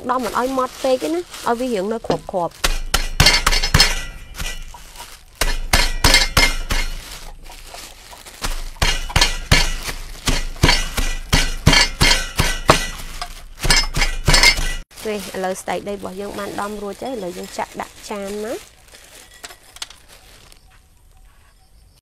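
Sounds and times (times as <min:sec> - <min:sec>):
pestle pounding on wood: 0:02.0 - 0:04.8, 0:05.4 - 0:07.3, 0:08.1 - 0:14.8.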